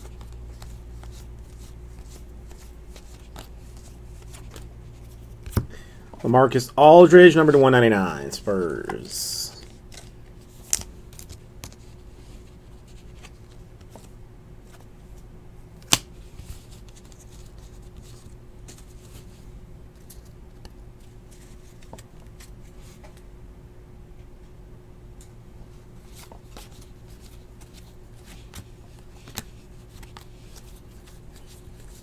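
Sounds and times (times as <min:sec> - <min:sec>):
card snapping: 0:15.8 - 0:16.1.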